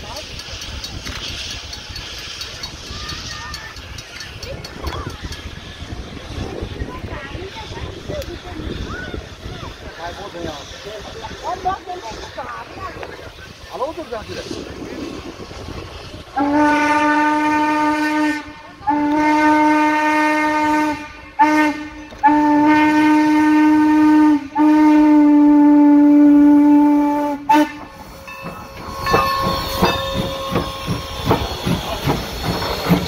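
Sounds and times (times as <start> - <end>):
steam hissing: 0.0 - 33.0
steam whistle blowing: 16.4 - 32.6
rapid knocks of locomotive: 27.8 - 33.0.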